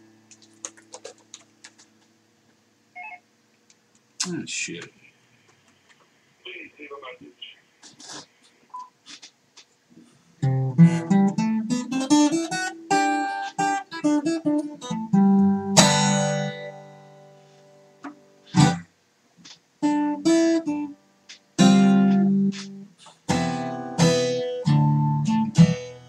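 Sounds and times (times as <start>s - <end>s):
acoustic guitar: 10.0s - 26.0s.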